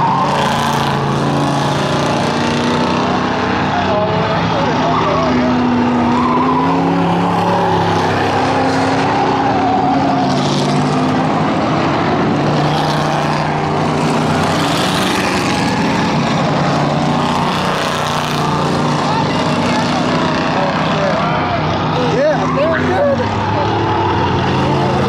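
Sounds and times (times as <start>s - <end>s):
race car engines: 0.0s - 25.0s.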